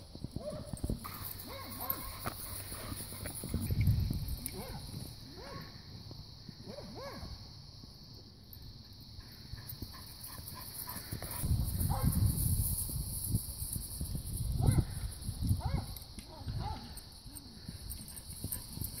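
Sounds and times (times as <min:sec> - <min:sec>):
dog barking: 0:00.4 - 0:02.2, 0:05.4 - 0:05.7, 0:06.7 - 0:07.3, 0:15.6 - 0:16.9.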